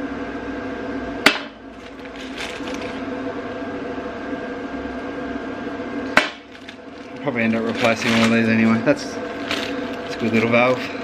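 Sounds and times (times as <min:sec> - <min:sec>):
steady room hum: 0:00.0 - 0:11.0.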